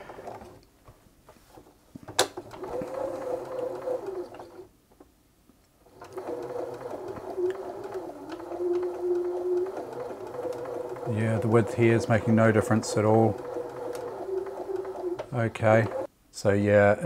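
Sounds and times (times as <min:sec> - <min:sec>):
sewing machine motor running: 0:02.4 - 0:04.7, 0:05.9 - 0:16.1.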